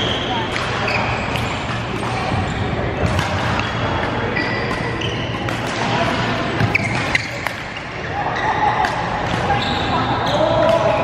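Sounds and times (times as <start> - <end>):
shoes squeaking on court floor: 0.0 - 10.7
racket hitting shuttlecock: 3.0 - 7.7.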